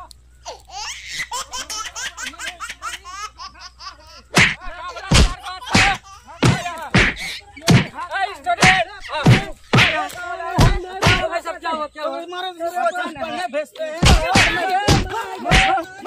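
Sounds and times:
shrill vocal cries: 0.0 - 7.6
smacks and thuds: 4.4 - 8.0, 8.6 - 11.3, 14.0 - 15.8
person yelling: 14.0 - 16.0.

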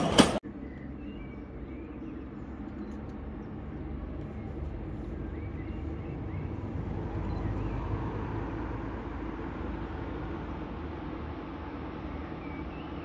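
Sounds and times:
bird chirps: 4.3 - 7.8.

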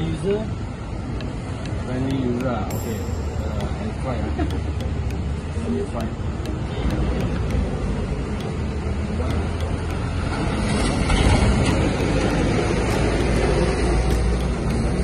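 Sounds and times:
lorry engine: 2.7 - 15.0.

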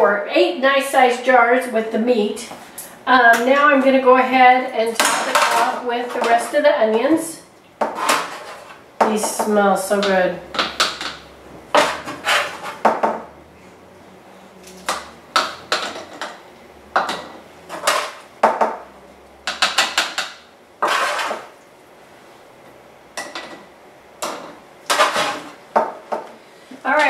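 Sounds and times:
spoon scraping pan: 7.8 - 12.8, 20.8 - 21.6.

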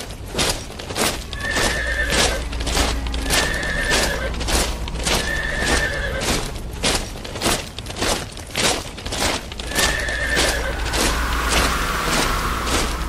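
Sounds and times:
hooves clip-clopping: 0.0 - 13.0
low rumble: 1.2 - 8.2, 9.4 - 13.0
horses neighing: 1.3 - 6.8, 9.6 - 11.2.

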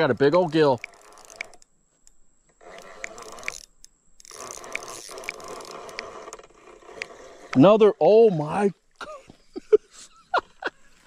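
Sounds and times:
fishing reel whirring with ticks: 0.0 - 7.7.

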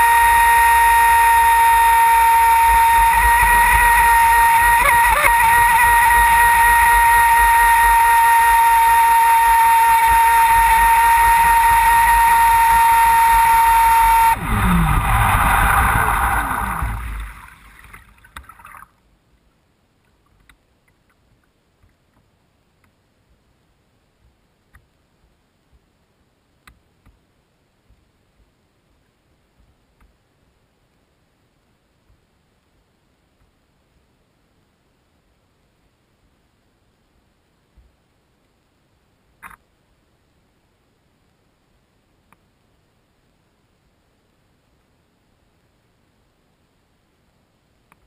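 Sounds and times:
electric motor whining: 0.0 - 17.5
rushing water: 0.0 - 19.0
faint ticks: 20.0 - 23.0, 42.3 - 42.5.

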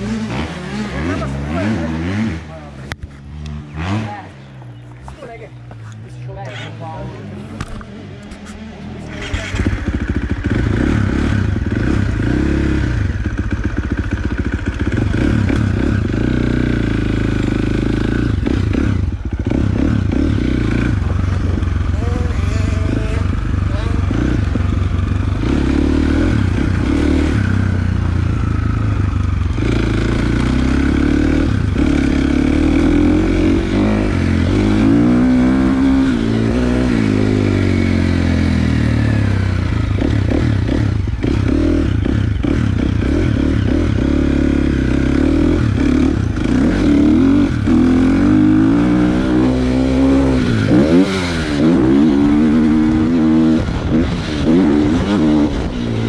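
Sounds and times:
dirt bike engine revving: 0.0 - 4.6, 6.4 - 56.0
knocks and rattles from bike: 7.5 - 37.5.

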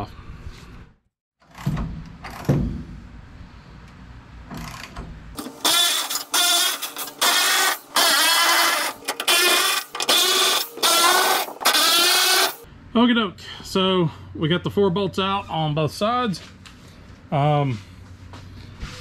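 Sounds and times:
impact wrench bursts: 5.4 - 12.7.

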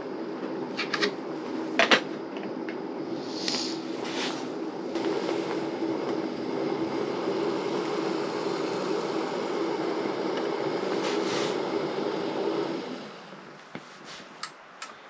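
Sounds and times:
gas stove burner running: 0.0 - 15.0.

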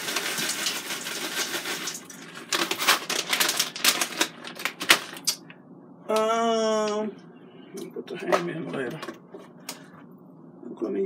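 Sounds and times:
plastic bag crinkling: 0.0 - 5.4.

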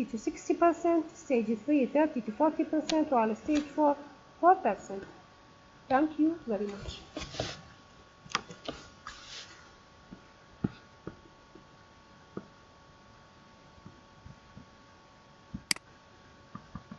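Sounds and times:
faint electrical hum: 0.0 - 16.9
sharp click: 15.6 - 15.9.

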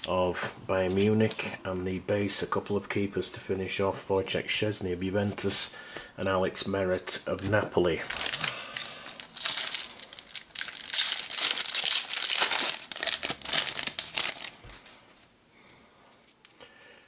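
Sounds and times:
foil wrapper tearing and crinkling: 8.0 - 14.7.

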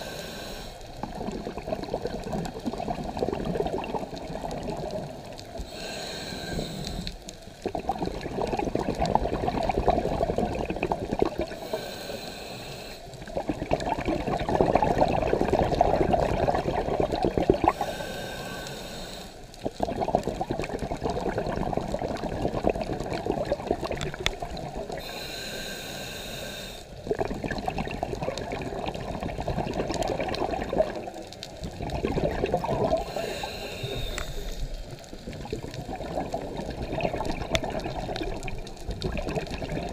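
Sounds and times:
regulator inhalation hiss: 0.0 - 0.9, 5.6 - 7.2, 11.6 - 13.2, 17.7 - 19.5, 25.0 - 27.0, 33.0 - 34.9
bubbling exhalation underwater: 1.0 - 5.2, 7.6 - 11.6, 13.3 - 17.9, 19.6 - 25.0, 27.1 - 33.2, 33.9 - 39.9.

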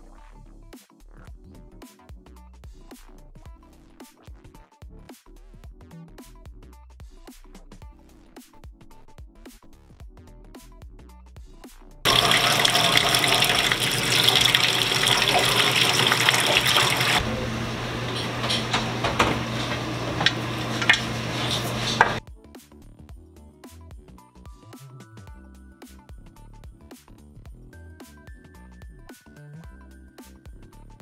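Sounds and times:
tap water splashing into metal sink: 12.1 - 17.2, 18.0 - 22.2.

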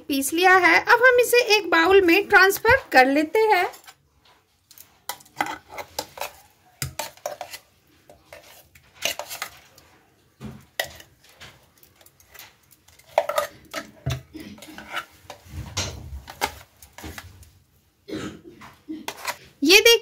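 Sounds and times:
spoon scraping a steel jar: 5.0 - 9.8, 11.8 - 15.5, 19.0 - 19.4.

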